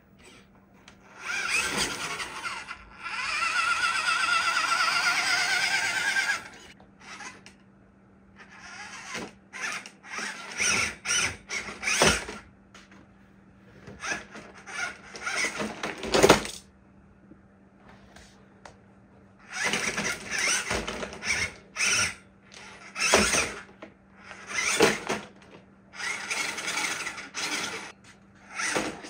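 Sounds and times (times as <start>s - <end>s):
small electric motor whining: 0.2s - 7.6s, 8.4s - 12.4s, 13.9s - 15.8s, 19.4s - 25.2s, 26.0s - 29.0s.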